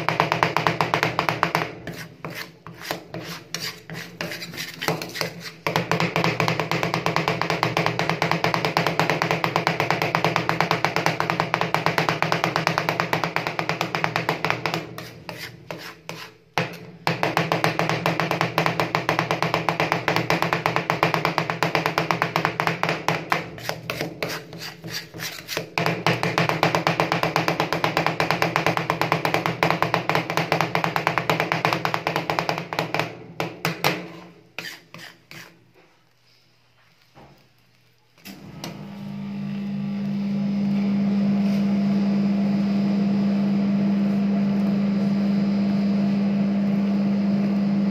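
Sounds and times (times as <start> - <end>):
metal spatulas chopping on steel: 0.0 - 35.5.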